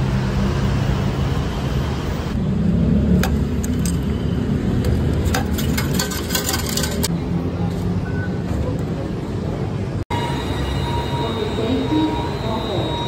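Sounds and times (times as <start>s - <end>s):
traffic rumble: 0.0s - 13.0s.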